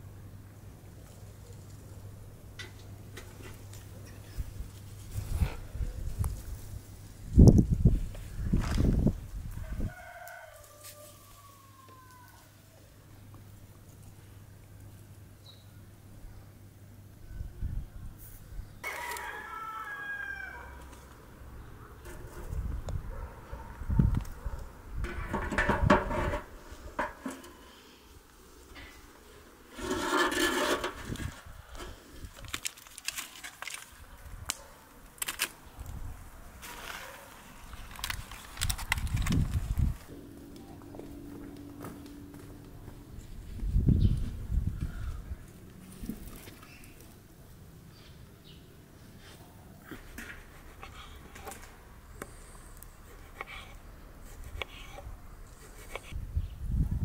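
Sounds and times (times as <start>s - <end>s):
metal cover scraping pan rim: 25.0s - 27.6s, 29.7s - 31.2s.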